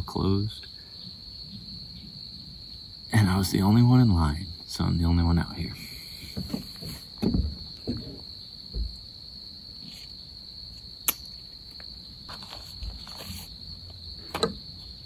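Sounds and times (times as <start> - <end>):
high-pitched insect chorus: 0.0 - 15.0
footsteps on wooden boards: 6.2 - 9.0.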